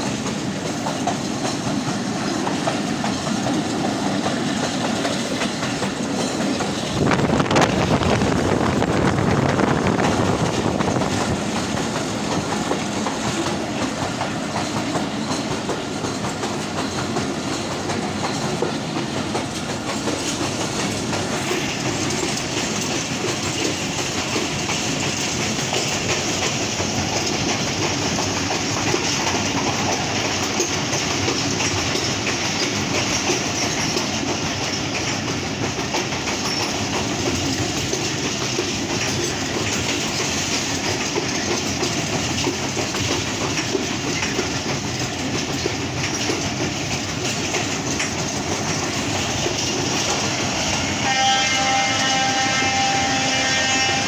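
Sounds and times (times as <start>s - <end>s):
train wheels on rails: 0.0s - 54.0s.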